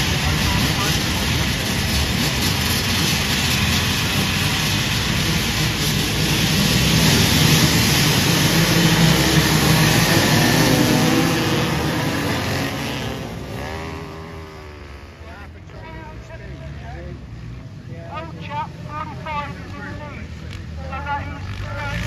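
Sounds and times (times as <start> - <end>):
motorcycle engines revving: 0.0 - 22.0.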